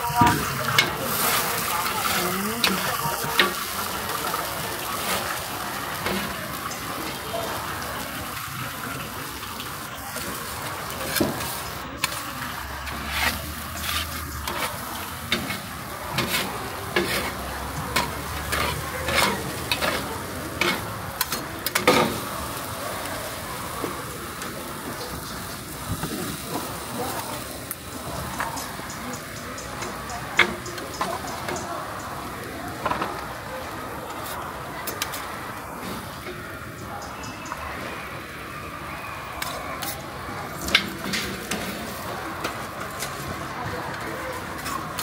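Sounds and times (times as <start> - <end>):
food sizzling on a griddle: 0.0 - 45.0
metal spatulas scraping and clacking: 11.1 - 22.1.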